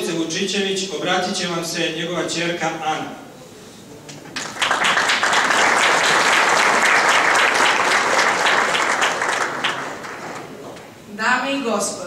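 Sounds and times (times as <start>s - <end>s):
audience applauding: 4.3s - 10.9s.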